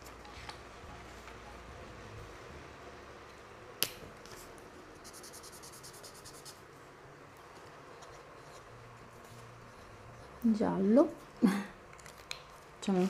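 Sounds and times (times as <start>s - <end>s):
marker scrubbing on paper: 5.0s - 6.6s.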